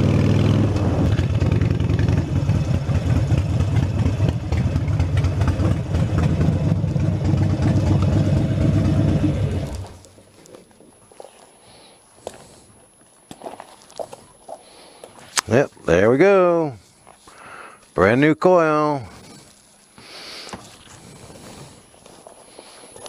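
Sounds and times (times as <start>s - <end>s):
motorcycle engine running and idling: 0.0s - 10.2s.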